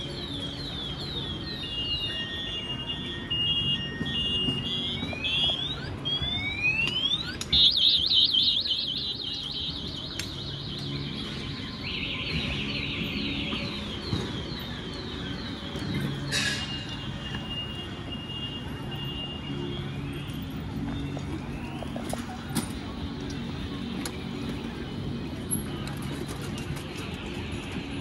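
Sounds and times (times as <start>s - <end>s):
car alarm siren: 0.0s - 19.5s
low street noise: 0.0s - 28.0s.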